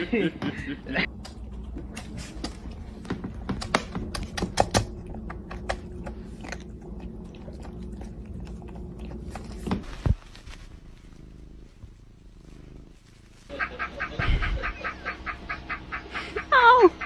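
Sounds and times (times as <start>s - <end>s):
kitten crunching dry kibble: 1.1s - 13.5s.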